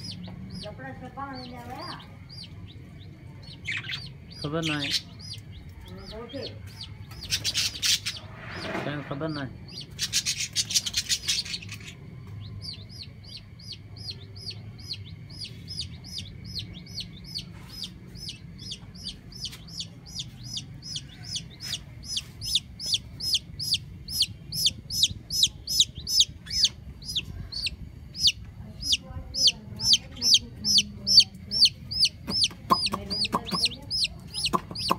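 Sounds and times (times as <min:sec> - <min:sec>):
chick peeping: 0:00.0 - 0:34.9.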